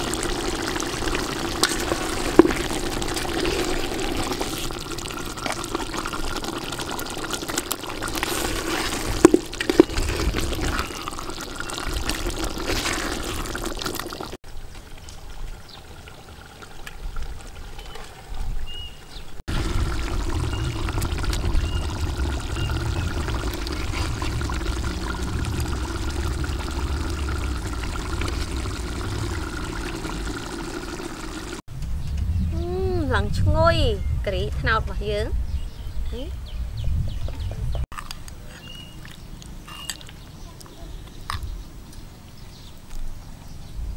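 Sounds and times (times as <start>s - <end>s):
stew bubbling in a pot: 0.0s - 31.7s.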